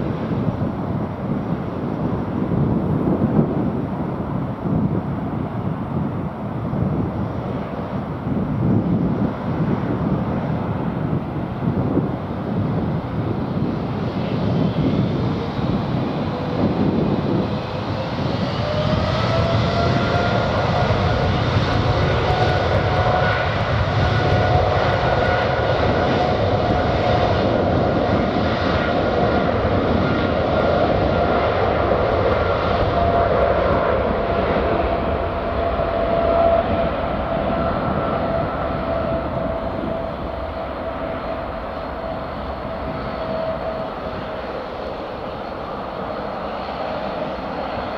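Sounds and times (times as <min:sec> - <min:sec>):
loud jet rumble: 0:00.0 - 0:47.9
jet engines spooling up: 0:13.0 - 0:47.9.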